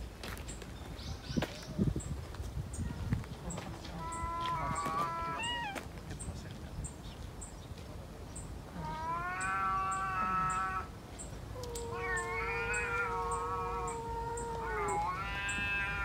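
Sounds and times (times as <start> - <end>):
cat yowling: 4.0 - 5.8, 8.8 - 10.9, 11.6 - 16.0.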